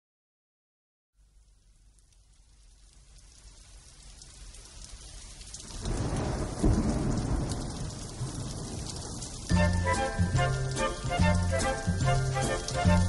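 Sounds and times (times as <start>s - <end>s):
steady rain: 1.2s - 13.0s
thunder rumble: 5.6s - 13.0s.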